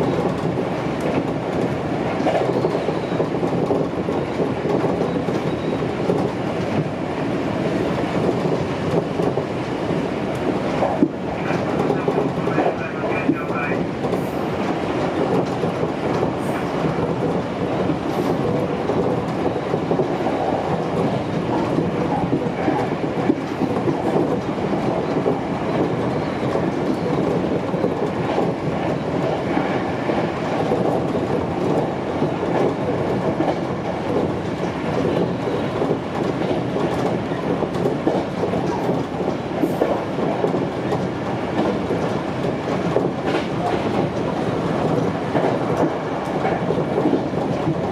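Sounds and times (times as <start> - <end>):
train wheels rumbling on rail: 0.0 - 47.9
clicks over rail joints: 14.0 - 47.9.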